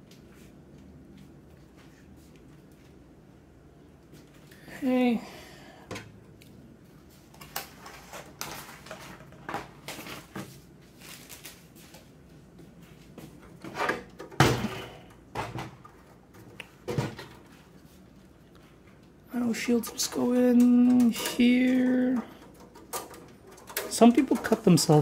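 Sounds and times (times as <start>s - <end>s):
metal computer case being handled: 7.3s - 11.9s, 19.4s - 25.0s.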